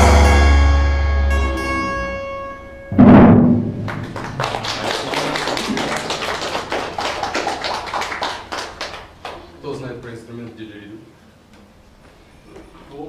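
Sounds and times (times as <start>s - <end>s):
band chord ringing out: 0.0s - 4.4s
loud drum hit: 2.9s - 4.7s.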